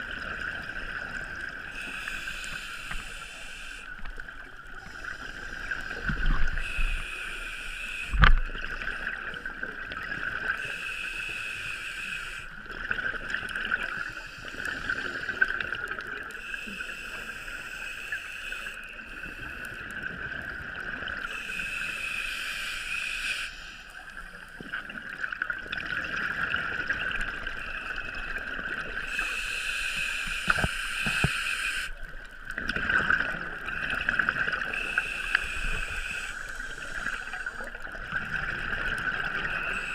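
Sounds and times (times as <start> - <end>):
diver breathing through regulator: 1.6 - 4.1, 4.8 - 9.2, 10.6 - 12.6, 16.4 - 19.8, 21.2 - 24.6, 29.0 - 32.0, 33.7 - 37.9, 39.0 - 39.9
gurgling bubbles: 12.7 - 16.3, 24.6 - 29.2, 32.1 - 39.9.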